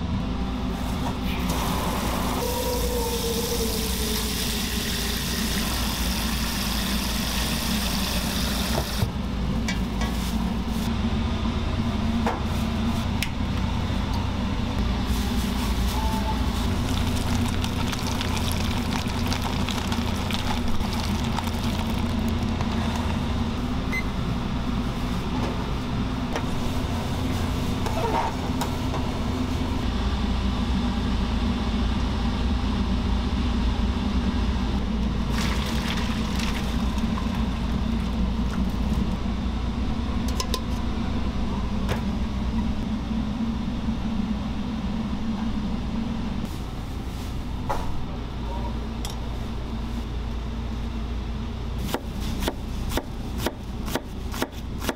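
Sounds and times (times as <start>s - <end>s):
kitchen equipment humming: 0.0s - 29.8s, 34.8s - 42.9s.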